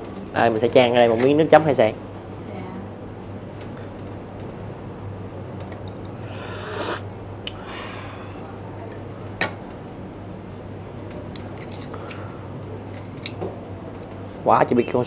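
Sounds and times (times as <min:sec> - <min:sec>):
steady low hum: 0:04.7 - 0:08.7
breathy rush: 0:06.2 - 0:07.0, 0:07.6 - 0:08.4.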